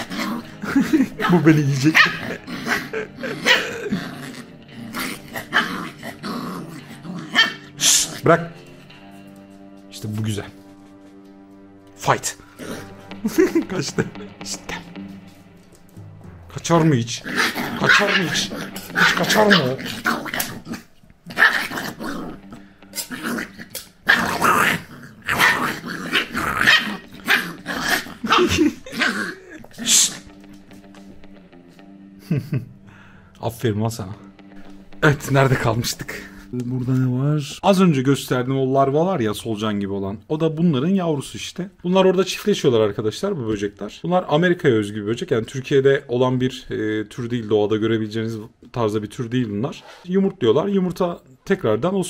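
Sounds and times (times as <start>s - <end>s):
puppy growling: 0.0s - 8.9s, 12.3s - 14.9s, 17.2s - 31.2s.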